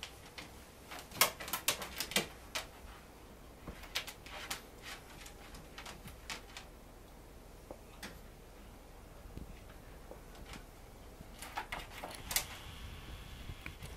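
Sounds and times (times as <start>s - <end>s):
puppy paws scratching carpet: 0.0s - 6.7s.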